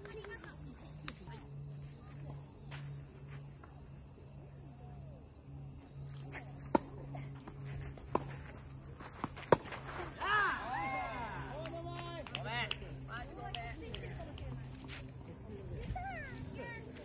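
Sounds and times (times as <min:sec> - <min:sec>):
insects droning: 0:00.0 - 0:17.0
tennis racket hitting ball: 0:09.2 - 0:10.0.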